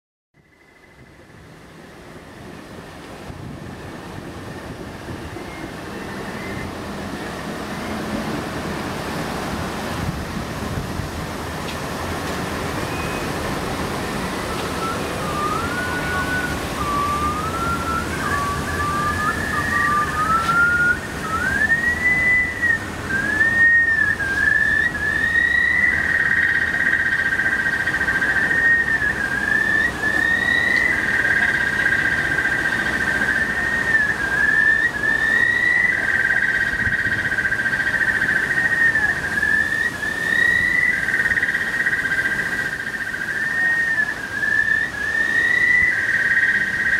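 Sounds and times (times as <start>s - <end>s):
sliding electronic whistle tones: 12.8s - 13.4s, 14.2s - 27.1s, 27.7s - 36.4s.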